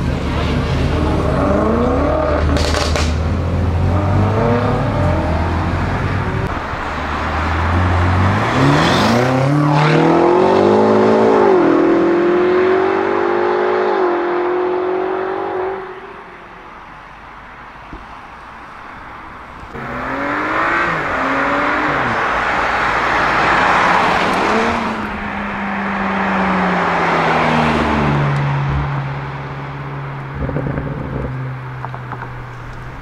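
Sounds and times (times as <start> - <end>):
car engine accelerating hard: 0.0 - 16.0.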